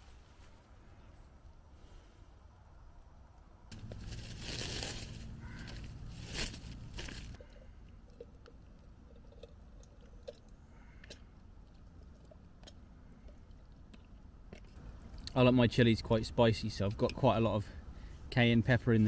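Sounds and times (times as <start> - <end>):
packaging crinkling: 3.7 - 7.4.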